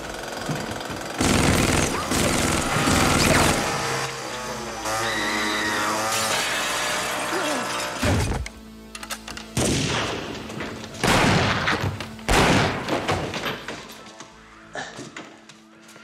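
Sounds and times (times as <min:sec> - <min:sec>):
film score with low drone: 0:00.0 - 0:16.0
echoing gunshots: 0:09.6 - 0:13.3.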